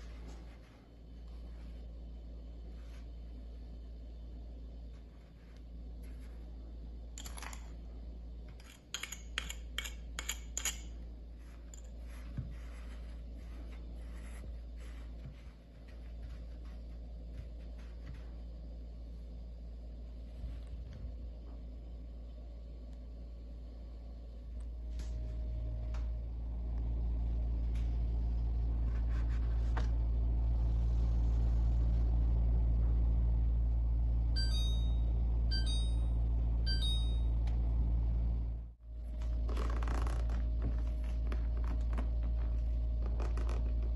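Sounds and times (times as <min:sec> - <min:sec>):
low hum: 0:00.0 - 0:43.9
metal spoon scraping and clicking: 0:08.6 - 0:11.0.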